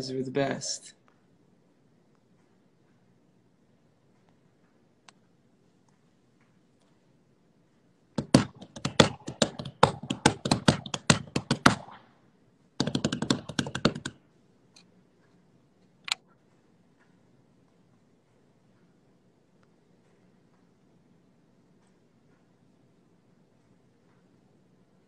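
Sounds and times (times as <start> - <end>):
fingers tapping on phone: 8.2 - 12.0, 12.8 - 14.2.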